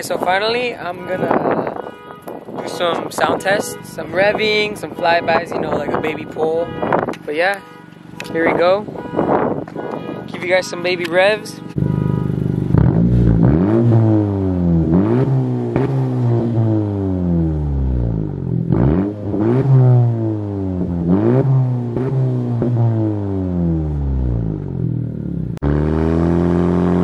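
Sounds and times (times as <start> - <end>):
car exhaust revving: 8.0 - 27.0.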